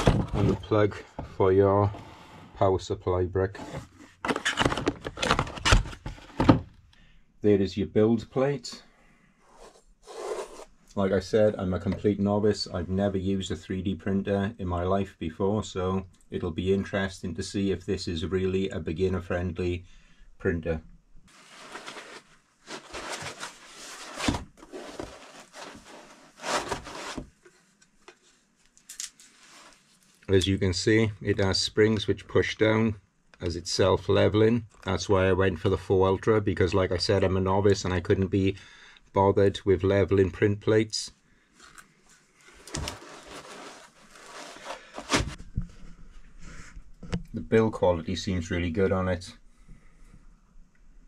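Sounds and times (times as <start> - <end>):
rustling of foam packaging: 21.3 - 27.3, 42.5 - 45.4.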